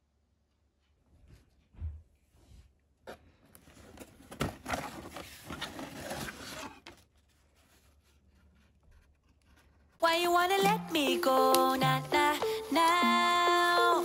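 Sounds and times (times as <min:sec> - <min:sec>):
cardboard lid scraping and rustling: 0:03.7 - 0:09.8.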